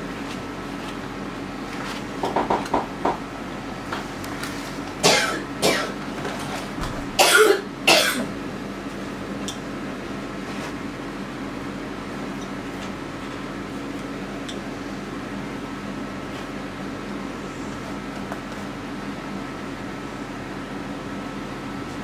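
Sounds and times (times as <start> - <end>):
steady low hum: 0.0 - 22.0
person coughing: 5.0 - 6.0, 7.2 - 8.4.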